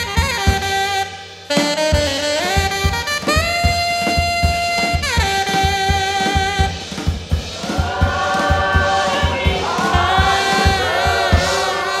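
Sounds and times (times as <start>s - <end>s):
drum kit beat: 0.0s - 12.0s
tenor saxophone: 0.0s - 12.0s
gospel singing: 7.5s - 12.0s.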